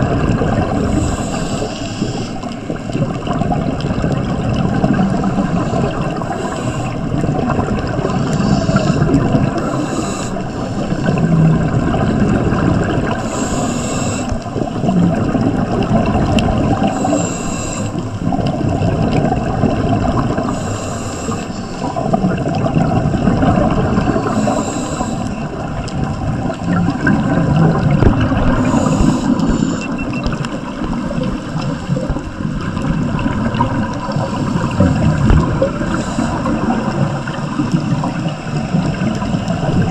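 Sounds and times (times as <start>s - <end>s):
bubbling exhaled air underwater: 0.0s - 39.9s
regulator hiss: 0.8s - 2.4s, 8.1s - 11.1s, 13.2s - 14.4s, 16.9s - 18.1s, 20.4s - 21.9s, 24.2s - 25.5s, 28.5s - 30.0s, 34.0s - 37.0s.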